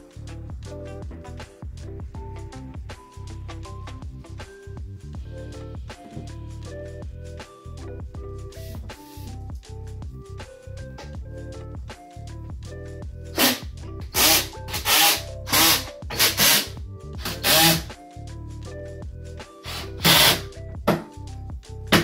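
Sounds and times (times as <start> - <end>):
background music: 0.0 - 22.0
cordless drill driving screws: 13.4 - 17.9, 19.7 - 20.5.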